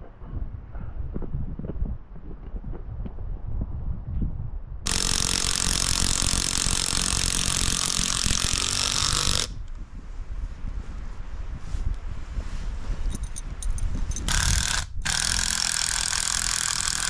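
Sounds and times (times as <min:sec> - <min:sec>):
power drill driving screw into wood: 0:04.9 - 0:09.6, 0:14.3 - 0:17.0.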